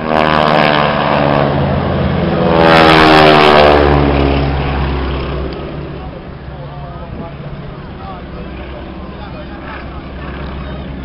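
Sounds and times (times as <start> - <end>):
propeller plane engines flying past: 0.0 - 11.0.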